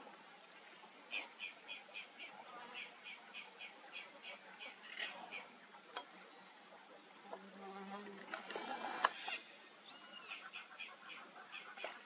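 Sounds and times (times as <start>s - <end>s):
insects buzzing: 0.0s - 12.0s
birds chirping: 8.2s - 12.0s.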